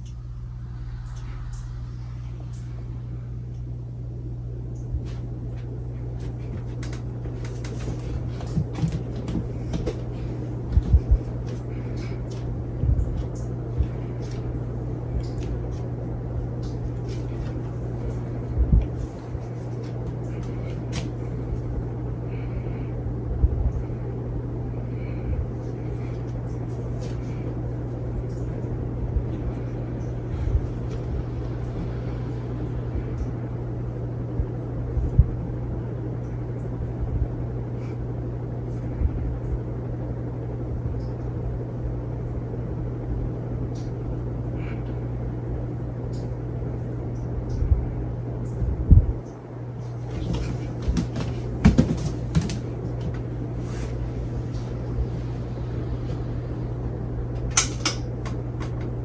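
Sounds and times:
rush of moving air: 0:00.0 - 0:04.4
ceiling fan motor hum: 0:00.0 - 0:59.0.

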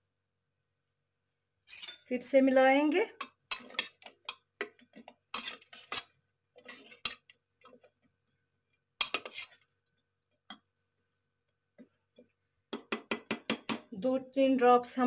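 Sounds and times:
ladle scraping metal pot: 0:01.7 - 0:02.1, 0:03.2 - 0:08.0, 0:09.0 - 0:09.8.

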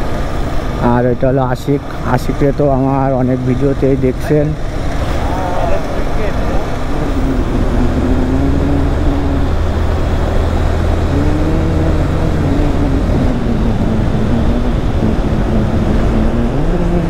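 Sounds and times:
rush of riding noise: 0:00.0 - 0:17.0.

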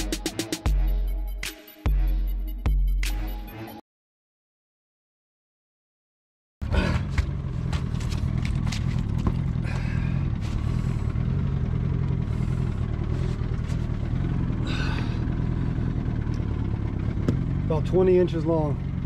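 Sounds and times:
boat engine running: 0:06.7 - 0:19.0.

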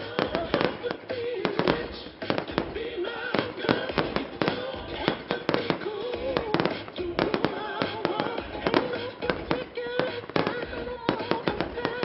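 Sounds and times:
fireworks bangs: 0:00.0 - 0:12.0.

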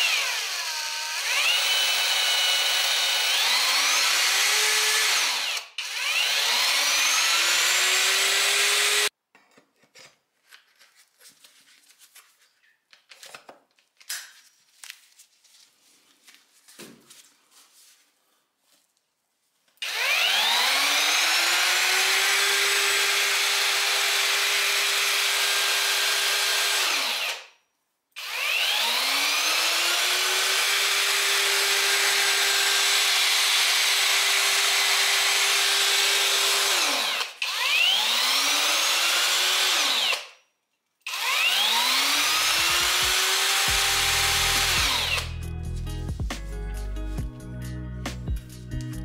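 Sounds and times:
background music: 0:42.8 - 0:49.0.

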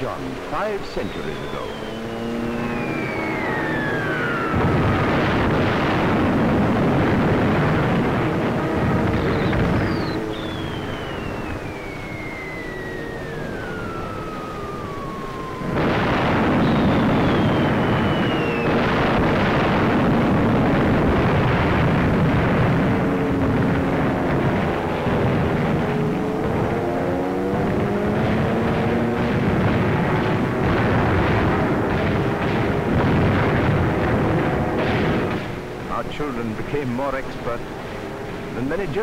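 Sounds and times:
bomb explosions: 0:00.0 - 0:37.3
whistle of falling bombs: 0:00.9 - 0:35.6.

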